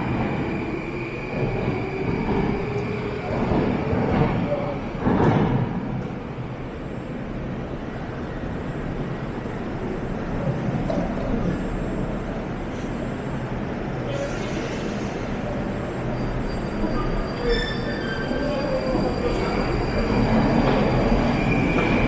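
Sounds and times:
train rumbling: 0:00.0 - 0:22.0
train wheels squealing: 0:10.9 - 0:22.0.

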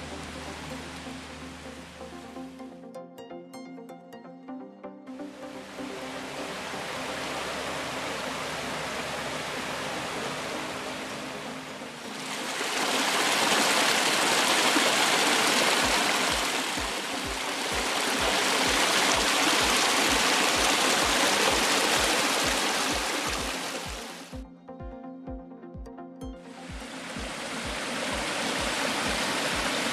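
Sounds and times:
brook splashing over stones: 0:12.0 - 0:24.3, 0:26.8 - 0:29.9.

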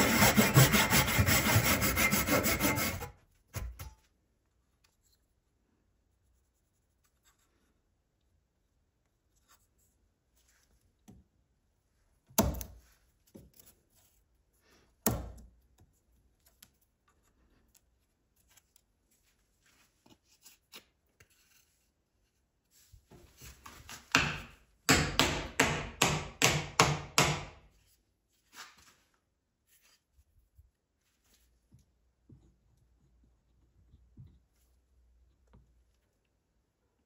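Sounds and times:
rasping strokes on wood: 0:00.0 - 0:03.1.

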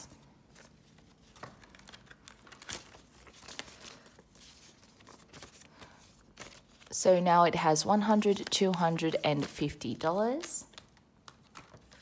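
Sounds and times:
paper money rustling: 0:00.5 - 0:07.0, 0:07.9 - 0:09.8.

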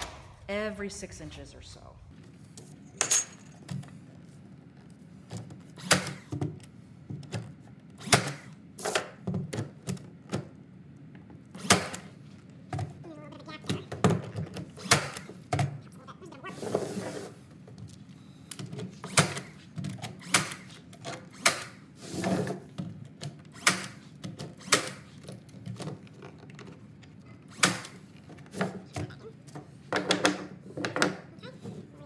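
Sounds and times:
nail gun firing into wood: 0:05.8 - 0:06.3, 0:08.0 - 0:09.2, 0:11.6 - 0:12.1, 0:14.8 - 0:15.3, 0:19.1 - 0:19.5, 0:20.2 - 0:20.7, 0:21.3 - 0:21.8, 0:23.5 - 0:24.0, 0:24.6 - 0:25.1, 0:27.5 - 0:28.0.

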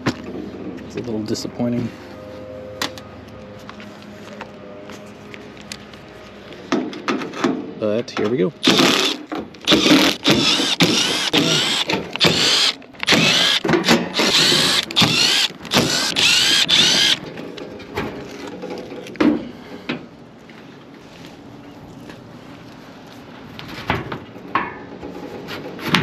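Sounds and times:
cordless drill spinning: 0:08.6 - 0:17.2.

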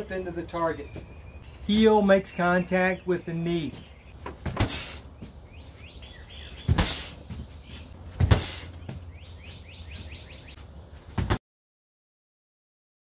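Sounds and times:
small bird chirping: 0:00.6 - 0:10.6
kicks thudding on punching bag: 0:06.7 - 0:07.5, 0:08.1 - 0:09.0, 0:11.2 - 0:11.4.

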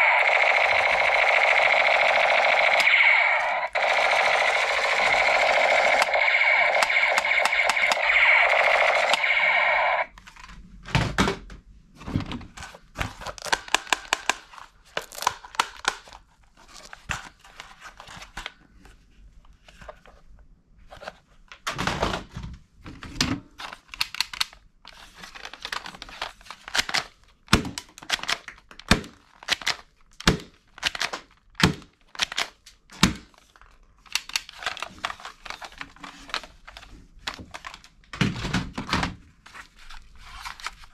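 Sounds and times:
electronic toy gun firing: 0:00.0 - 0:10.1
plastic toy guns clacking in a box: 0:13.0 - 0:16.2, 0:25.4 - 0:33.3.

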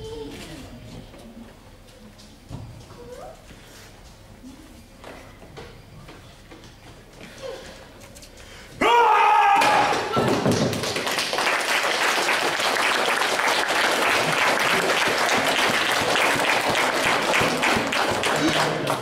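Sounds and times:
small group clapping: 0:09.6 - 0:19.0.

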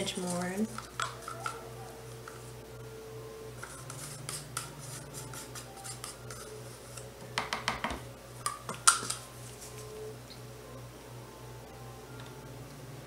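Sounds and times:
wooden stick scraping plastic cup: 0:03.6 - 0:07.0.

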